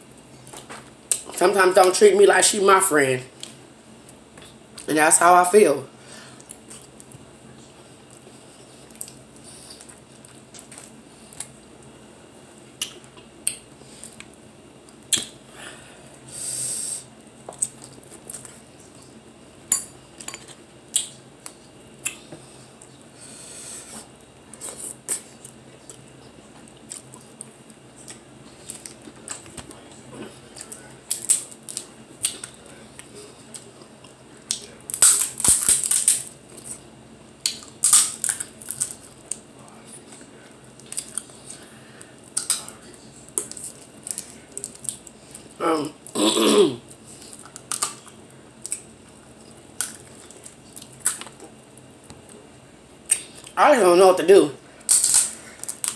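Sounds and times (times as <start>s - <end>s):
crab shells cracking: 30.6s - 32.6s, 34.5s - 36.4s, 37.5s - 39.4s, 47.3s - 48.9s, 54.9s - 55.9s.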